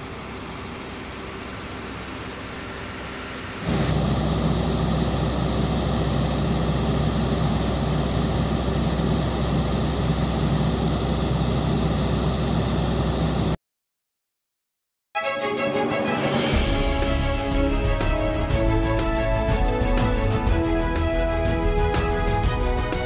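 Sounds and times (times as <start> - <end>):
combine harvester engine hum: 0.0 - 13.6
grain pouring from auger: 3.6 - 13.6.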